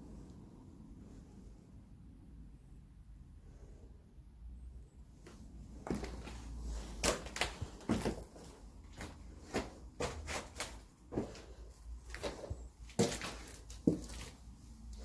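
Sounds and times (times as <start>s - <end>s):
footsteps crunching on debris: 5.8s - 14.4s.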